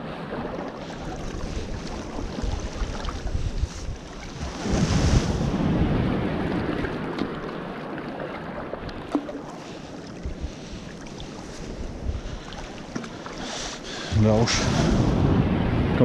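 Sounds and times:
sea water sloshing and splashing: 0.0 - 15.7
wind on microphone: 1.0 - 7.4, 10.2 - 12.8, 14.1 - 16.0.

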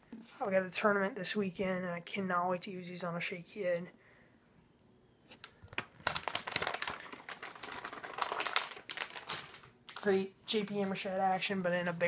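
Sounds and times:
plastic packaging crinkling: 5.3 - 12.0.

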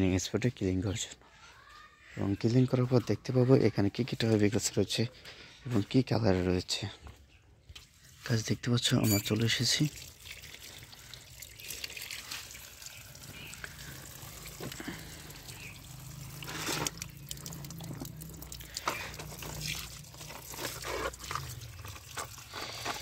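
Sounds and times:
tap water running: 9.1 - 23.0.

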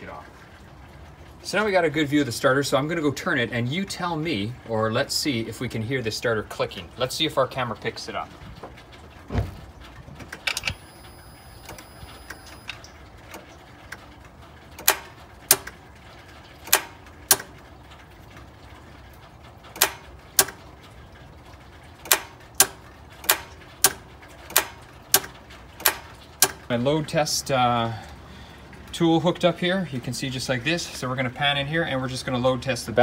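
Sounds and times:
starter solenoid clicking: 10.2 - 18.5, 19.2 - 26.8.

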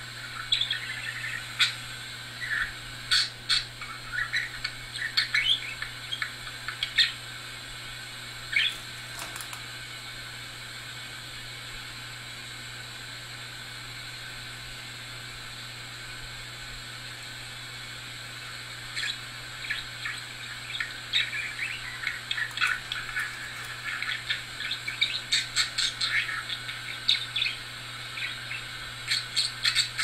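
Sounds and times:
steady low hum: 0.0 - 30.0
budgerigar chirping and squawking: 19.0 - 27.6, 28.2 - 30.0.

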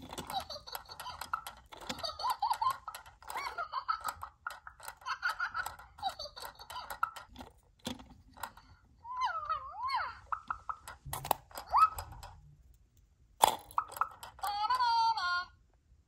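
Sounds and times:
quick toy clicks: 0.0 - 8.7, 10.4 - 12.4, 13.4 - 14.7
squeaky electronic toy babble: 0.2 - 7.3, 9.1 - 10.9, 11.6 - 12.3.

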